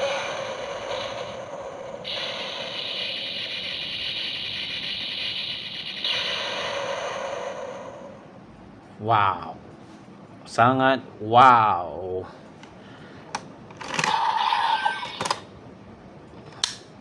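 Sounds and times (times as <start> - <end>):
buzzy electronic toy sound effect: 2.0 - 8.0, 14.1 - 15.2.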